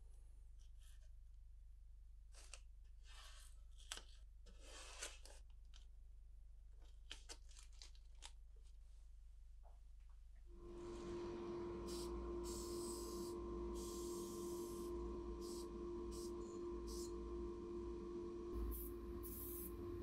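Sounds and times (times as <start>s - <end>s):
low steady hum: 10.5s - 20.0s.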